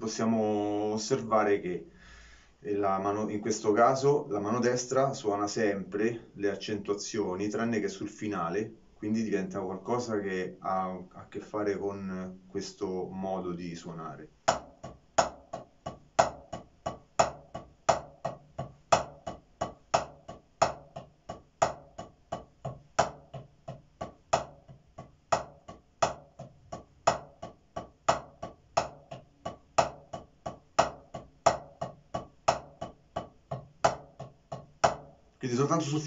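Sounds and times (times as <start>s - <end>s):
drumsticks on a practice pad: 14.3s - 35.2s.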